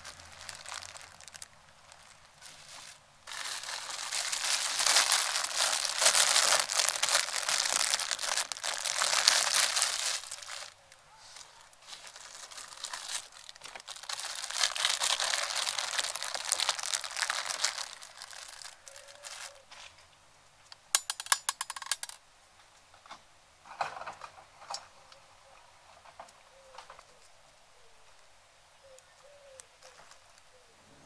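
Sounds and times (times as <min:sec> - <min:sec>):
crinkling and rustling: 0:00.0 - 0:20.1, 0:20.7 - 0:22.2, 0:23.0 - 0:25.0, 0:29.5 - 0:30.5.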